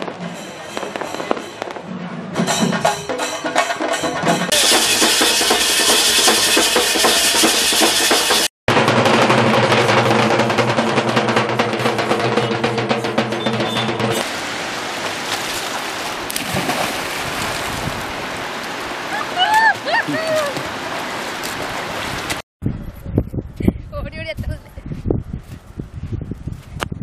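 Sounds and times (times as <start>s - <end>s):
outdoor noise: 0.0s - 27.0s
loud fast drumming: 2.5s - 14.3s.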